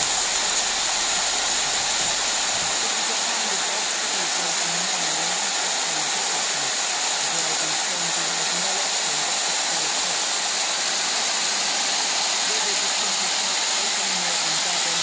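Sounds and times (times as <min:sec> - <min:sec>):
heavy rain and running water: 0:00.0 - 0:15.0.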